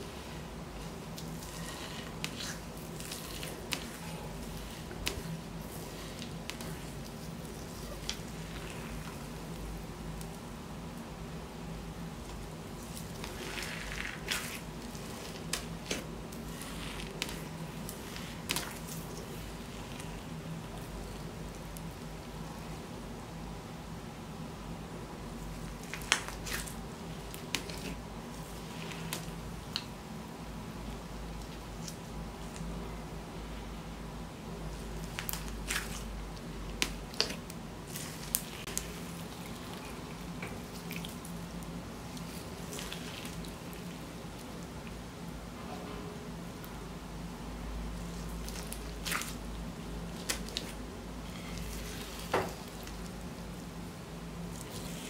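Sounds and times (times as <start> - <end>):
slime squishing: 0.0 - 10.5, 12.1 - 22.0, 25.5 - 30.0, 34.7 - 44.8, 47.9 - 53.8, 54.4 - 55.0.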